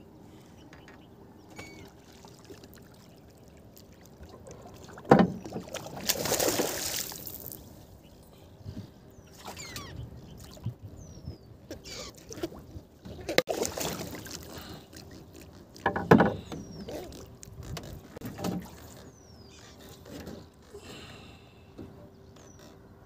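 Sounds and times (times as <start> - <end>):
water splashing beside boat: 1.4 - 7.8, 11.7 - 20.8
faint bird chirps: 9.2 - 12.2.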